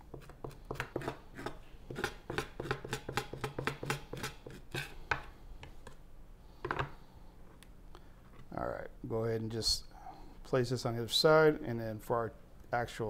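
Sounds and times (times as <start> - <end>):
knife scraping on cutting board: 0.0 - 5.2.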